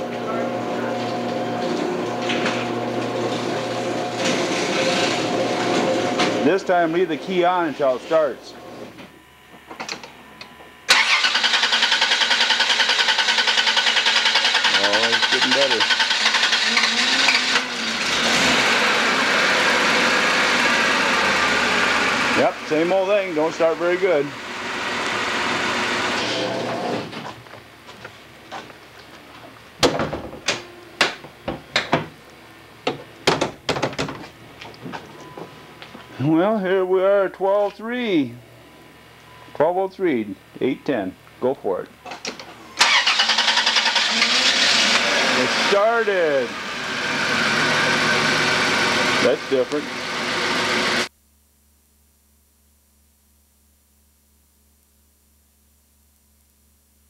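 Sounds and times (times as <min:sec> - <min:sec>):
engine cranking on starter: 0:10.9 - 0:20.3, 0:42.8 - 0:45.8.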